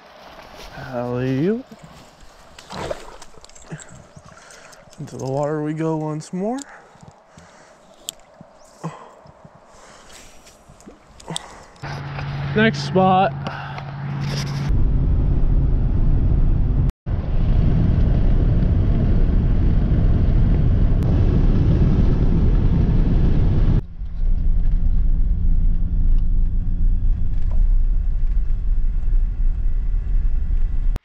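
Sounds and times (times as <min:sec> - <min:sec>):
tyres on gravel road: 0:00.0 - 0:14.7
engine hum: 0:00.0 - 0:31.0
road and tyre rumble: 0:00.0 - 0:31.0.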